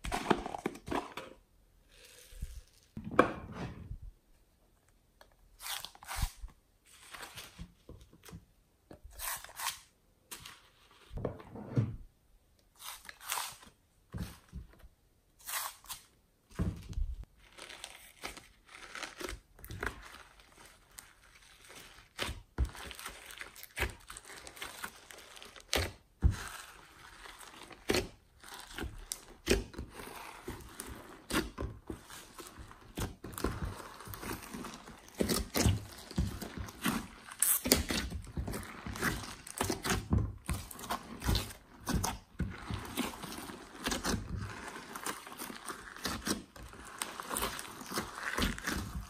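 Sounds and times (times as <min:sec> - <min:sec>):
hands squishing slime: 0:17.4 - 0:49.0.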